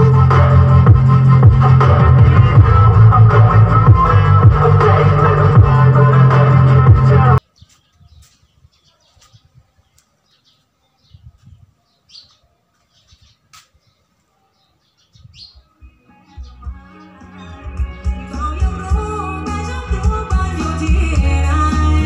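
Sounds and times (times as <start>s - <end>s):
faint birds chirping: 7.4s - 18.6s.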